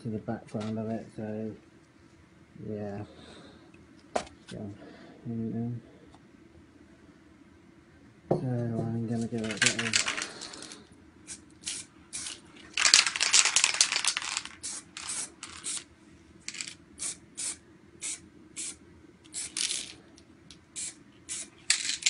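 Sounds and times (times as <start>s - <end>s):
spray paint can hissing: 11.3s - 15.9s, 16.5s - 20.0s, 20.8s - 22.0s.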